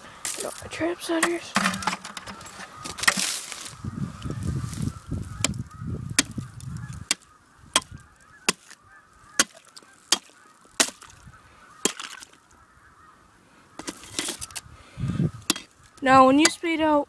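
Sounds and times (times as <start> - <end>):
ice spud striking ice: 1.1 - 3.5, 6.2 - 6.4, 7.1 - 8.8, 9.4 - 11.2, 11.8 - 12.4, 13.8 - 14.6, 15.5 - 15.7.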